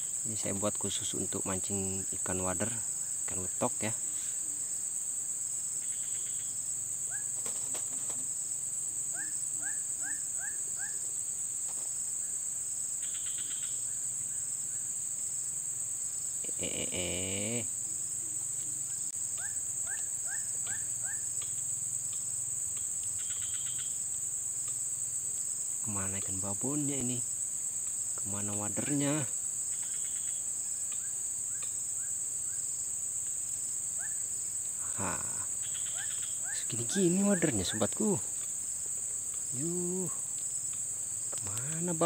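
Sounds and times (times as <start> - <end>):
high-pitched insect chorus: 0.0 - 42.0
strong insect call: 0.0 - 42.0.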